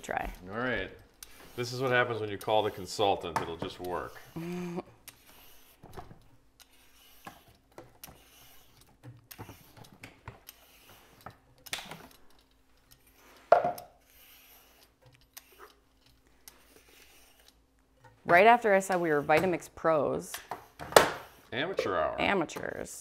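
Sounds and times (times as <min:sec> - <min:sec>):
peeler scraping sweet potato: 0:01.2 - 0:04.4, 0:06.6 - 0:11.2, 0:14.0 - 0:17.6, 0:18.3 - 0:21.9.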